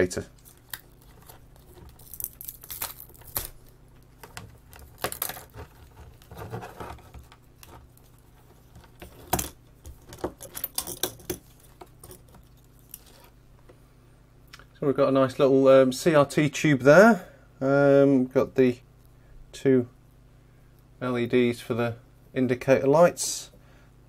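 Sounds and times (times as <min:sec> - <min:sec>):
plastic and metal parts rattling: 0:04.2 - 0:13.2.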